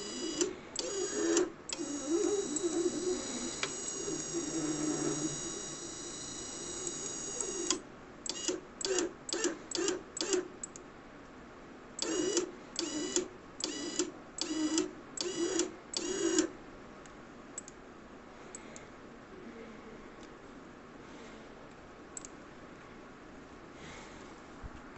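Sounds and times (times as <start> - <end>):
small electric motor whining: 0.0 - 7.8.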